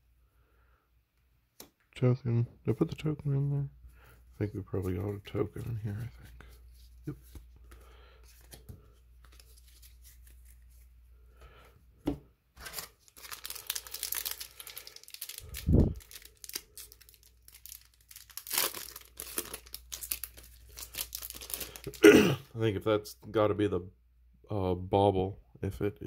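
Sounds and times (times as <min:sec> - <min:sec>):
foil wrapper crinkling and tearing: 0:12.6 - 0:22.0.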